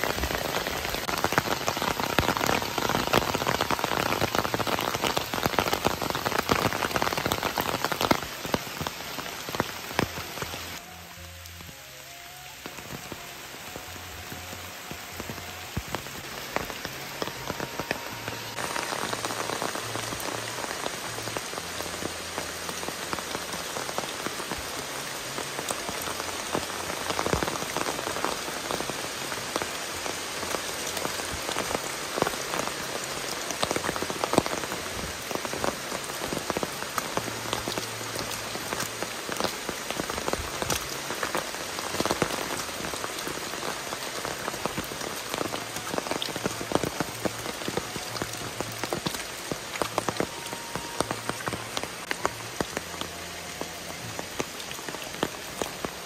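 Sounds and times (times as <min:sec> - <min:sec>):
rain falling on leaves: 0:00.0 - 0:56.0
raindrops ticking: 0:00.0 - 0:56.0.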